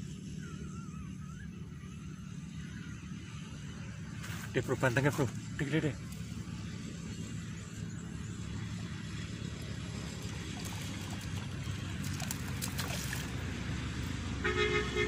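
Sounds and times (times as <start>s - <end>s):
fish splashing at water surface: 10.2s - 13.6s.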